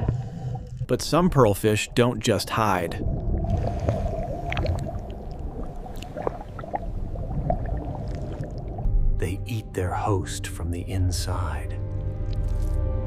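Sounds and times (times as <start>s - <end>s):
low underwater rumble: 0.0s - 9.2s.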